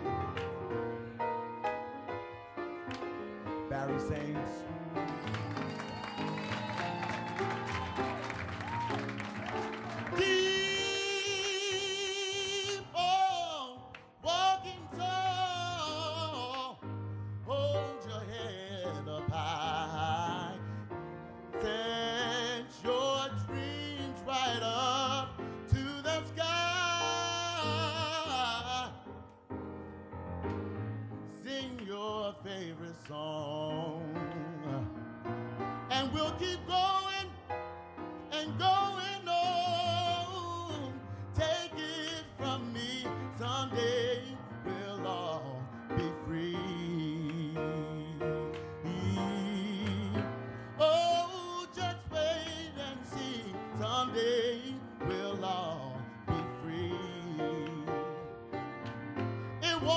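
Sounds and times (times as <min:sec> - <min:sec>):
piano accompaniment: 0:00.0 - 0:59.9
man singing into microphone: 0:03.7 - 0:04.7, 0:10.0 - 0:20.8, 0:21.4 - 0:29.2, 0:31.3 - 0:35.0, 0:35.8 - 0:37.5, 0:38.2 - 0:58.3, 0:59.4 - 0:59.9.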